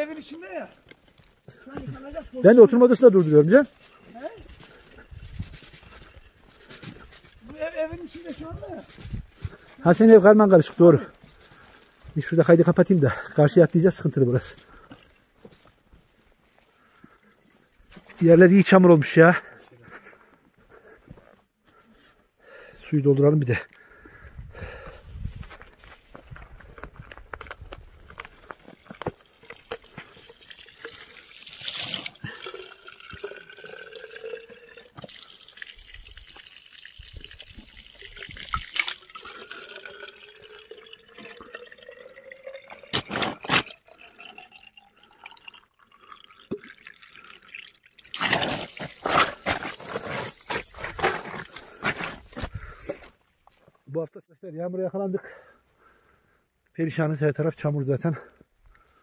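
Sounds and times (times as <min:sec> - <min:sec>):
water pouring into a bottle: 0:16.8 - 0:19.1, 0:27.4 - 0:52.8.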